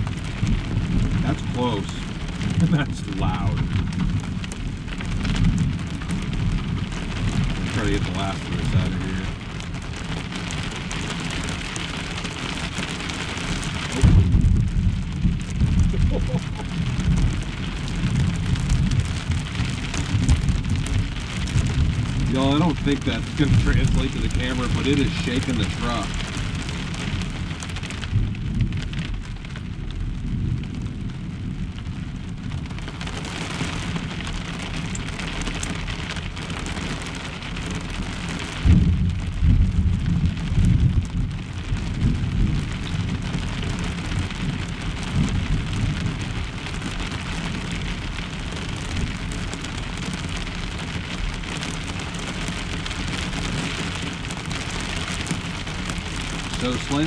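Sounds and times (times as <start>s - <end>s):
heavy rain on a roof: 0.0s - 57.0s
thunder rumble: 0.0s - 57.0s.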